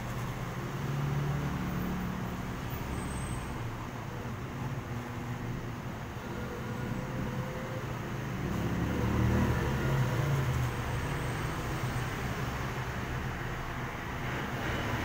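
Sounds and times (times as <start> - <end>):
large vehicle passing: 6.5 - 13.3
small motorcycles passing: 8.4 - 11.9.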